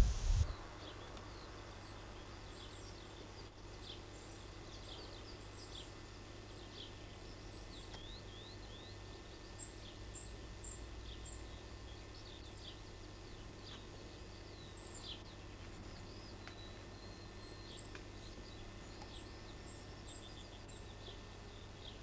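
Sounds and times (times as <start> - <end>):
steady low hum: 0.0 - 0.9
small birds chirping: 0.0 - 22.0.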